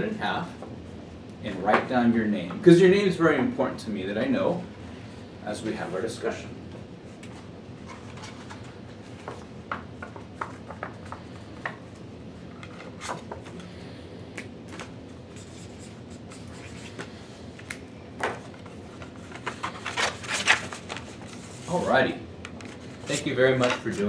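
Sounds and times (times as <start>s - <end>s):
paper being folded: 19.0s - 22.0s.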